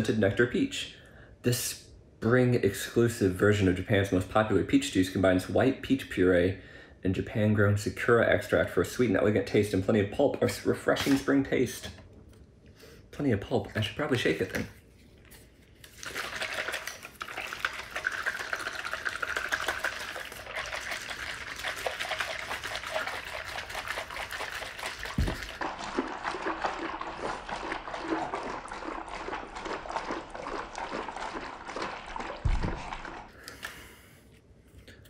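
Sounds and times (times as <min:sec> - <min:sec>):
juice sloshing in shaken bottle: 0:14.3 - 0:33.4
dull thump: 0:32.4 - 0:33.0.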